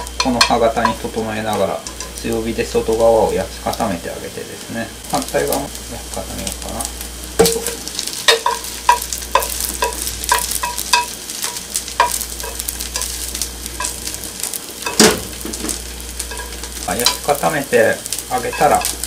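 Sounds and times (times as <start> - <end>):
omelette sizzling in a frying pan: 0.0 - 19.0
chopsticks knocking against a pan: 7.4 - 13.2.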